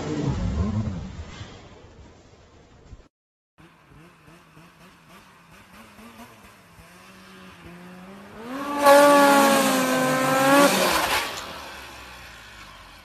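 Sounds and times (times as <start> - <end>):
snowmobile engine revving: 3.6 - 13.0.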